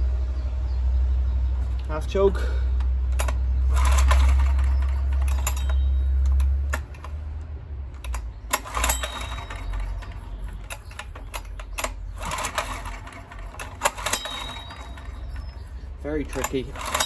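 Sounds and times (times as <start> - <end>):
generator engine spluttering: 2.3 - 7.2, 8.0 - 17.0
choke lever clicks: 2.7 - 15.7.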